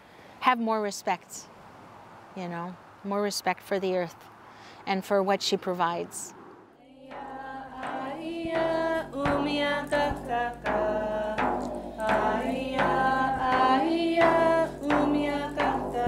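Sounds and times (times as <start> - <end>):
drum strikes: 7.1 - 16.0.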